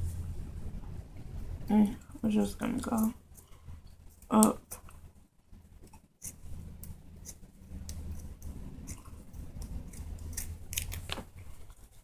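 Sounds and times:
low steady hum: 0.0s - 12.0s
scissors snipping fabric: 6.2s - 11.2s.

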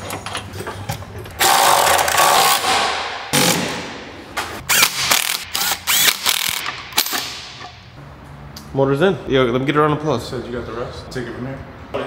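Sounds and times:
cordless power ratchet running: 4.7s - 6.7s.

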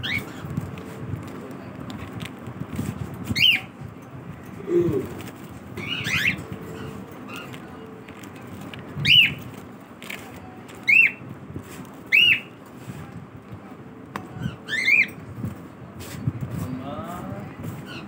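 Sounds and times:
cockatiel contact calls: 0.0s - 0.4s, 3.3s - 3.7s, 5.0s - 7.8s, 9.0s - 9.5s, 10.8s - 12.6s
low rustle of birds: 0.0s - 18.0s.

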